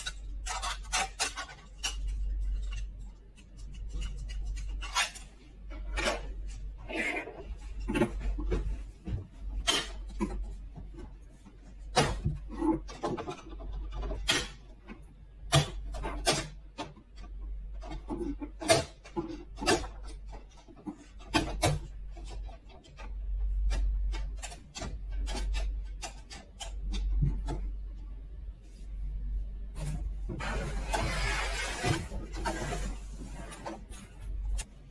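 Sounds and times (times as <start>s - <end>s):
plastic toy doors clicking: 15.5s - 27.6s.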